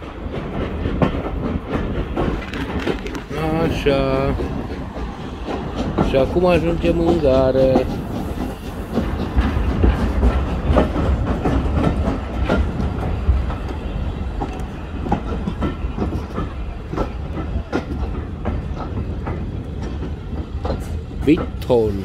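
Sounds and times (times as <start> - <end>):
train rumbling on rails: 0.0 - 22.0
wheels clicking over track: 0.0 - 22.0.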